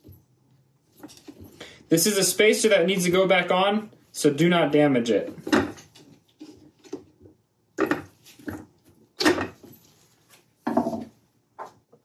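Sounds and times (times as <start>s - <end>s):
tools clunking on wooden workbench: 5.3s - 6.2s, 7.8s - 9.7s, 10.6s - 11.8s.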